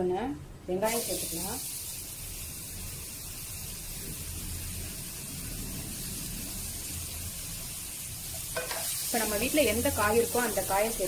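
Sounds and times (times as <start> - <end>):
onions sizzling in oil: 0.8 - 11.0.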